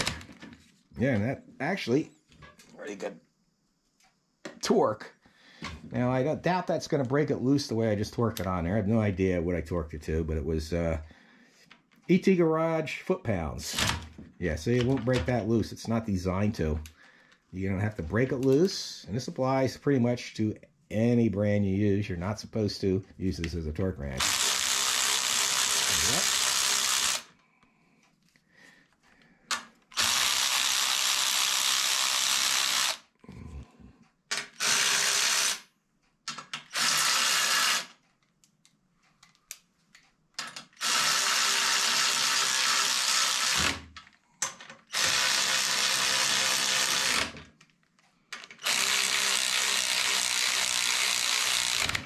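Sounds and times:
cordless ratchet motor spinning: 24.2 - 27.3, 29.9 - 33.0, 34.4 - 35.6, 36.7 - 38.0, 40.8 - 43.8, 44.9 - 47.4, 48.6 - 52.0.

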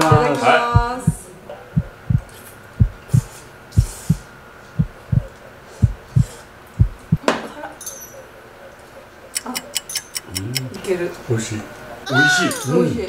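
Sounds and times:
heartbeat thumps: 0.0 - 7.2.

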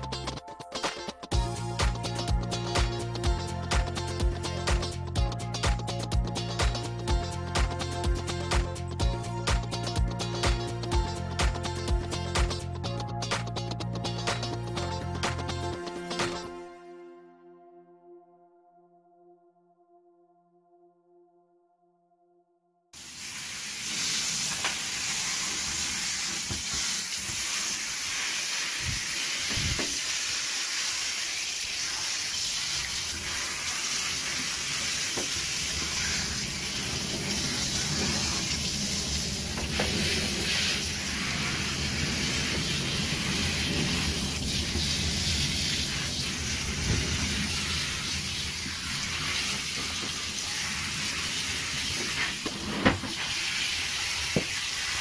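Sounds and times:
water spraying on metal tub: 1.4 - 12.7, 23.0 - 55.0.

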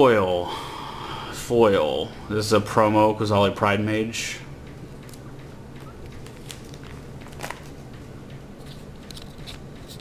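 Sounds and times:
steady low hum: 0.0 - 10.0
plastic sleeve pages crinkling: 6.0 - 7.8.

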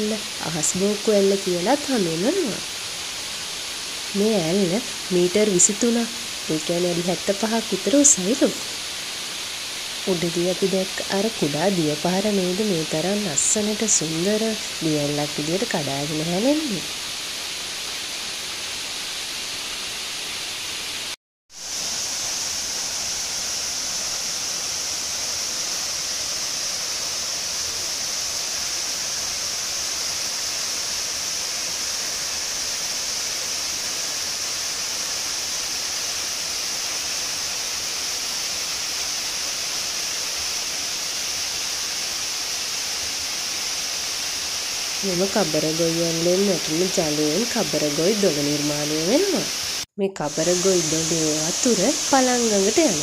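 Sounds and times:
waterfall rushing: 0.0 - 53.0.

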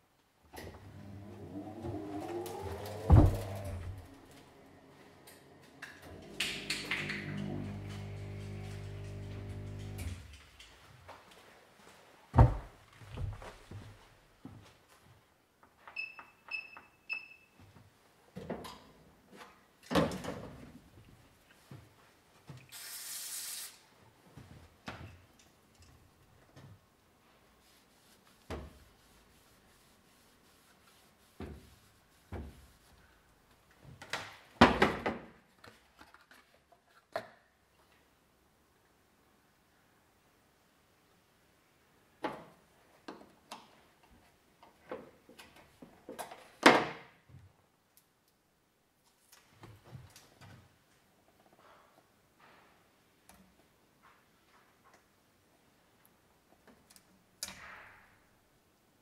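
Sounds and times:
cloth rubbing wheel rim: 0.9 - 5.2
aerosol can hiss: 22.7 - 23.9.

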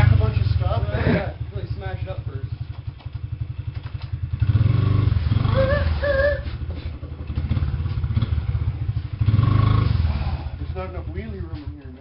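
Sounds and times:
dirt bike engine revving: 0.0 - 11.7.

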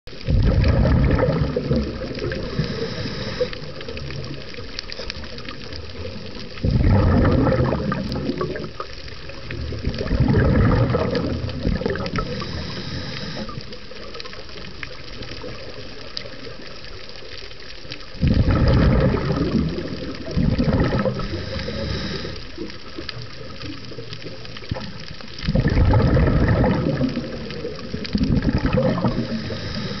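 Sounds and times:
exhaled bubbles from regulator: 0.1 - 4.4, 5.0 - 13.8, 18.2 - 22.7, 24.6 - 30.0
underwater wash: 0.1 - 30.0
high hiss: 2.3 - 3.6, 12.2 - 13.6, 21.2 - 22.5, 29.1 - 30.0.

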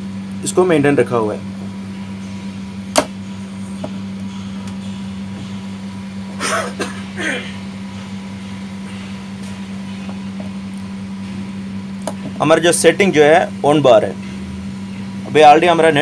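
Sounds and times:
contactor coil humming: 0.0 - 16.0
sharp click: 2.9 - 3.2.

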